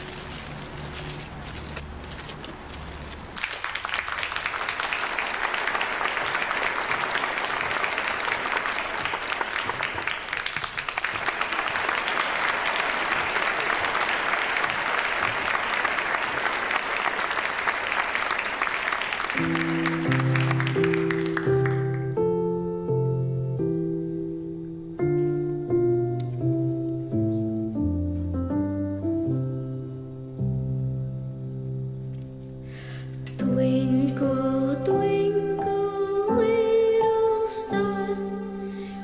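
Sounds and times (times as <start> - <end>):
audience clapping: 2.2 - 22.2
piano playing: 19.2 - 39.0
low background music: 19.4 - 39.0.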